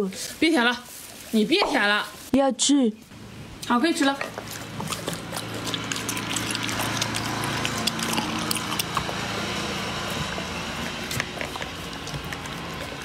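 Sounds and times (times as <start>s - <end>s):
dog licking and chewing: 4.2s - 13.0s.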